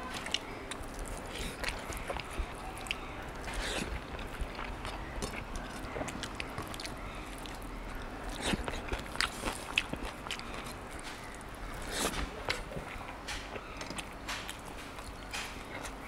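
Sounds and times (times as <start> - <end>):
person chewing food: 0.0 - 16.0.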